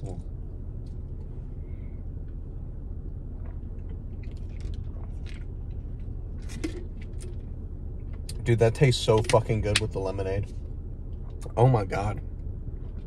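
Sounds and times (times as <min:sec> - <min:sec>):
low rumble inside car: 0:00.0 - 0:13.0.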